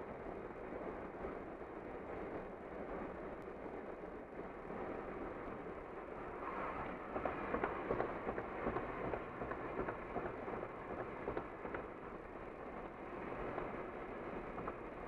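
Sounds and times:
road and tyre noise: 0.0s - 15.0s.

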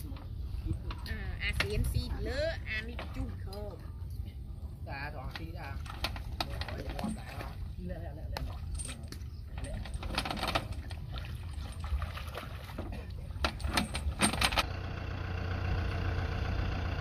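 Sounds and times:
metal clanks and rattles: 5.4s - 7.6s, 8.4s - 11.9s, 12.7s - 14.7s
tractor engine idling: 13.1s - 17.0s.

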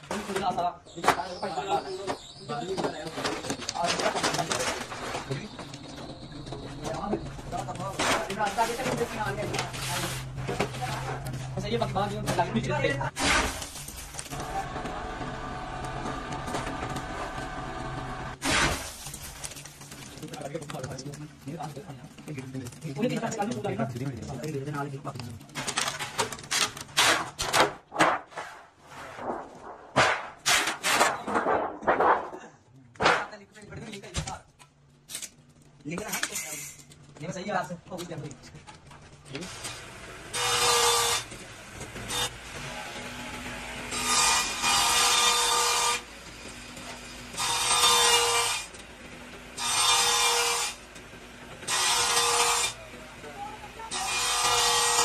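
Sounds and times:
wood veneer sheets scraping: 7.7s - 12.6s, 25.9s - 32.4s
table saw running: 39.5s - 41.3s, 42.0s - 52.8s
table saw blade cutting wood: 40.3s - 41.3s, 43.3s - 46.0s, 47.4s - 48.7s, 49.6s - 50.8s, 51.7s - 52.8s, 53.9s - 55.0s.

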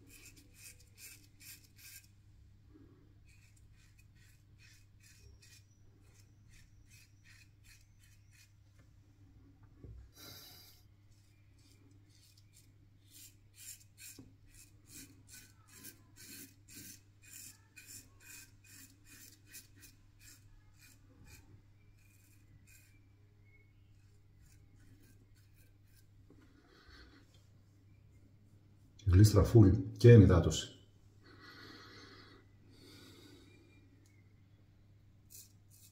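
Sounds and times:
razor scratching stubble: 0.0s - 2.1s, 3.2s - 8.6s, 11.1s - 26.1s, 35.3s - 35.9s.

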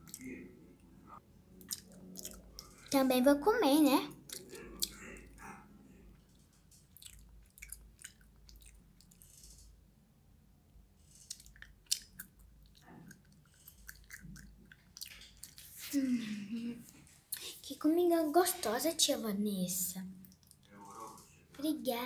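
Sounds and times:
mouth chewing sounds: 0.0s - 0.3s, 1.6s - 3.0s, 4.2s - 5.5s, 6.7s - 9.7s, 11.2s - 15.9s.

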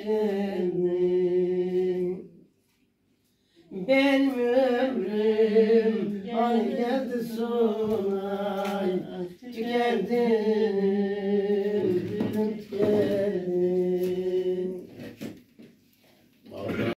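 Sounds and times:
man singing unaccompanied: 3.7s - 14.9s.

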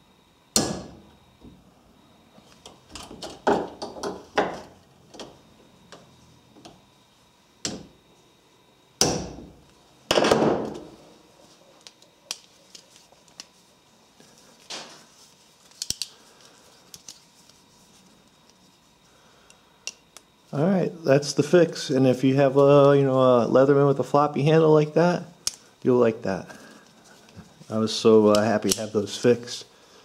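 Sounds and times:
tool handling clicks: 11.8s - 13.5s, 15.6s - 16.2s, 16.9s - 17.2s.

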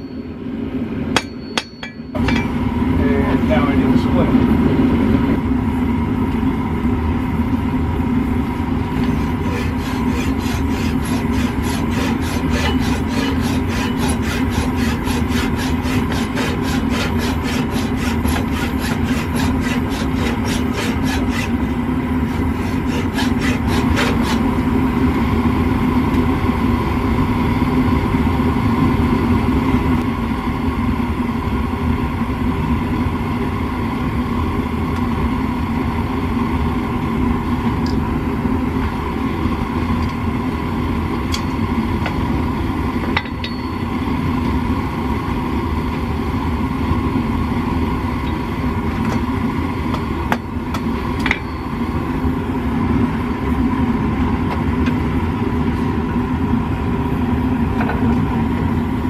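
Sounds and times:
forge burner droning: 0.0s - 59.0s
rhythmic scraping on steel: 9.0s - 24.5s.

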